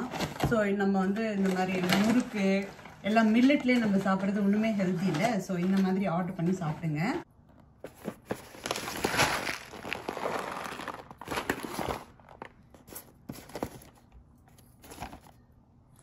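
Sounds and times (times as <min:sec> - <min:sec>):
foil pouches crinkling: 0:01.0 - 0:05.8, 0:07.9 - 0:15.4
cardboard boxes being handled: 0:07.8 - 0:15.4.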